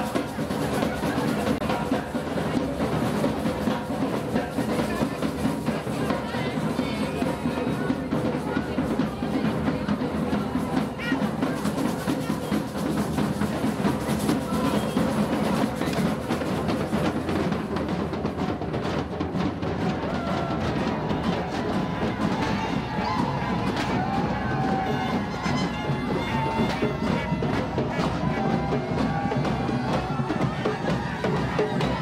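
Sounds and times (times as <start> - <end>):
drums beating: 0.0 - 32.0.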